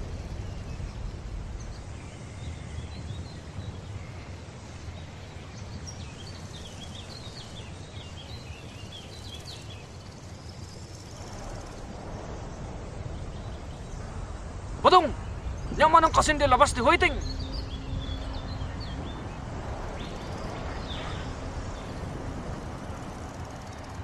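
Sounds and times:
steady low rumble: 0.0s - 4.1s, 10.1s - 24.0s
birds chirping: 0.0s - 24.0s.

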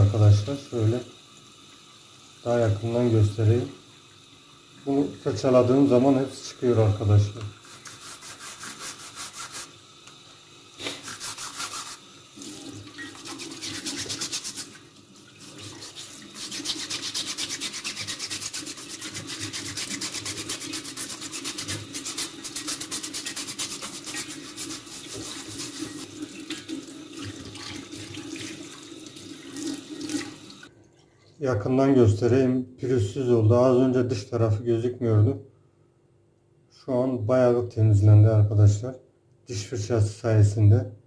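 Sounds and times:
tap water running into sink: 0.0s - 30.7s
toothbrush scrubbing plastic filter: 7.6s - 9.8s, 10.8s - 12.1s, 13.0s - 26.7s.

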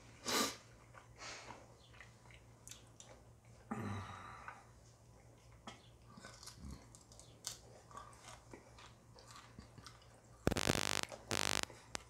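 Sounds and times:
jerky chewing crunches: 6.0s - 12.0s
phone timer alarm tones: 10.5s - 11.7s.

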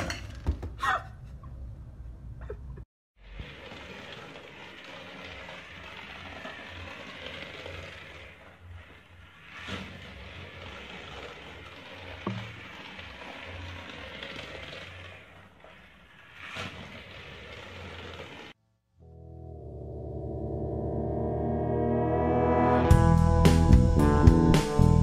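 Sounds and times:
toy car motor rattle: 3.2s - 18.6s.

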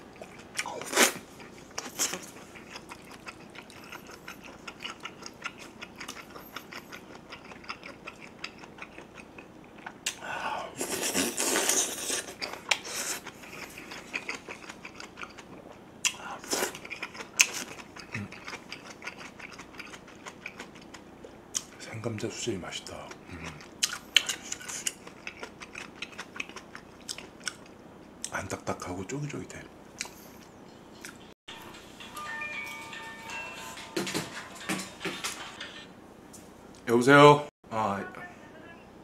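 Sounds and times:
wet chewing clicks: 0.1s - 10.2s, 12.2s - 21.7s, 23.1s - 28.4s.

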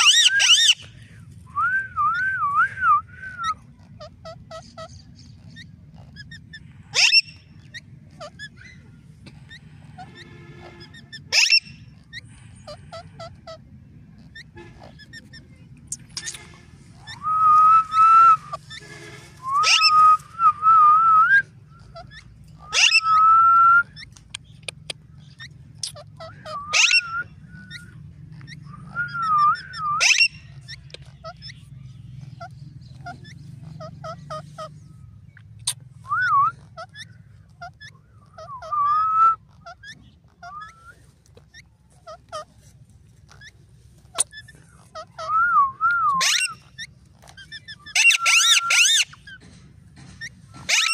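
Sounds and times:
parakeet whistled calls: 0.0s - 1.0s, 1.6s - 42.5s, 43.3s - 49.4s, 50.2s - 50.9s
sharp high bird notes: 14.4s - 20.8s.

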